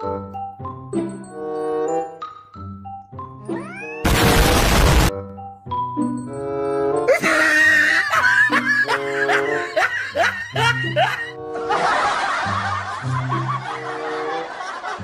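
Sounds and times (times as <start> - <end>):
light background music: 0.0 - 4.0, 5.1 - 15.0
woman laughing: 7.1 - 14.0.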